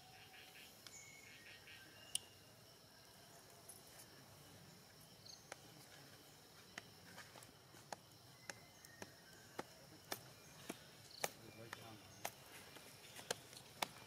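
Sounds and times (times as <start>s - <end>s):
insects chirring: 0.0s - 14.0s
faint sharp clicks: 7.9s - 12.4s.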